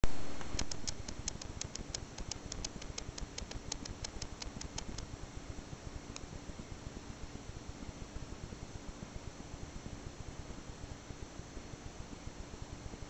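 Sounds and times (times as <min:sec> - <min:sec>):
low steady hum: 0:00.0 - 0:13.0
rapid light ticks: 0:00.4 - 0:05.1.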